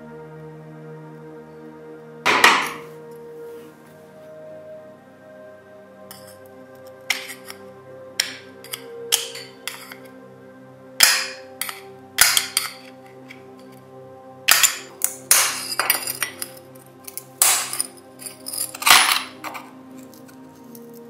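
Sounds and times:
screwdriver scraping metal: 7.1s - 7.6s, 8.2s - 10.0s, 14.5s - 21.0s.

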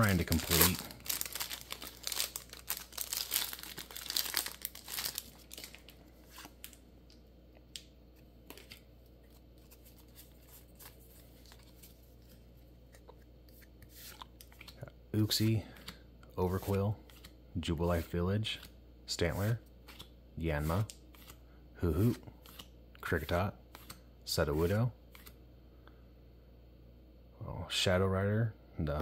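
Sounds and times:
foil wrapper tearing and crinkling: 0.0s - 6.8s
cards clicking: 19.9s - 20.1s.

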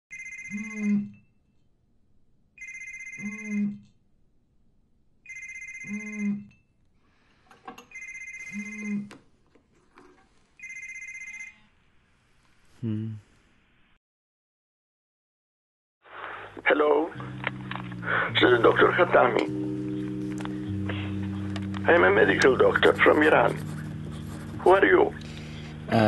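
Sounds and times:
electronic telephone ring: 0.1s - 1.3s, 2.6s - 3.8s, 5.3s - 6.6s, 7.9s - 9.1s, 10.6s - 11.7s.

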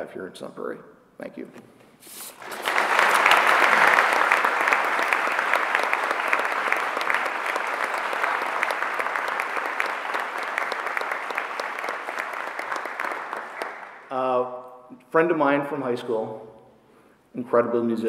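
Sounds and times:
audience applauding: 2.4s - 14.2s.

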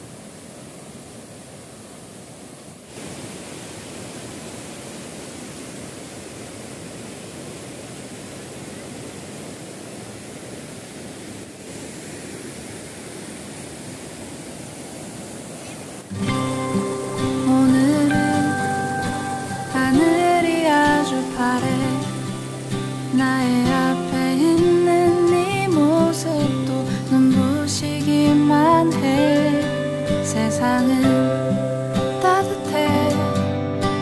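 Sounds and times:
river rapids rushing: 0.0s - 34.0s
music: 16.1s - 34.0s.

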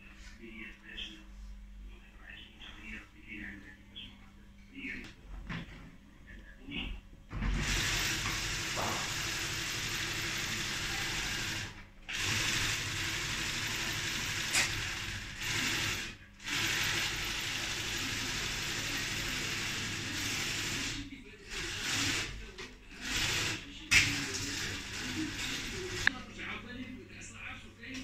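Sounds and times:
sewing machine running: 7.5s - 26.2s.

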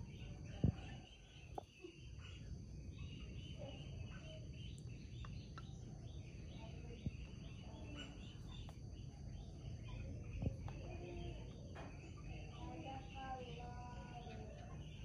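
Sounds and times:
insects chirping: 0.0s - 15.0s
steady low hum: 0.0s - 15.0s.

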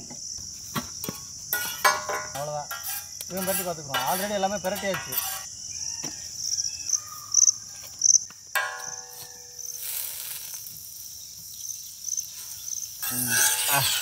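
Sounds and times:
crickets chirping: 0.0s - 14.0s
ringing metal clink: 8.6s - 9.6s
butter sizzling on griddle: 9.1s - 14.0s.

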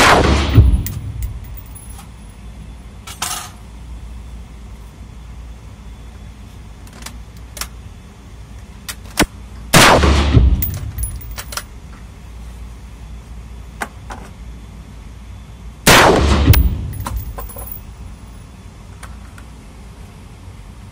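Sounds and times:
rifle gunshots echoing: 0.0s - 1.1s, 9.8s - 11.3s, 15.9s - 17.5s.

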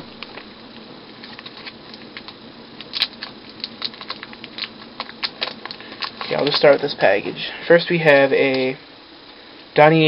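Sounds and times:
plastic packaging crinkling: 1.1s - 7.3s.

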